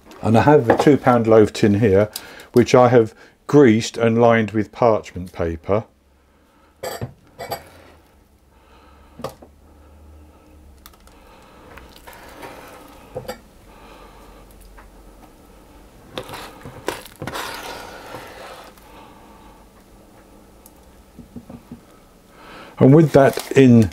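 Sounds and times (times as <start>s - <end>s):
spoon scraping batter: 16.1s - 18.9s.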